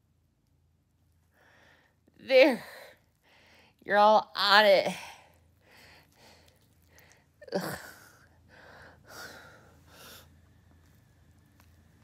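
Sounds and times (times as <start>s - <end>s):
woman breathing heavily: 1.3s - 2.1s, 3.2s - 3.8s, 5.0s - 7.4s, 8.0s - 10.5s
woman groaning: 7.4s - 8.2s.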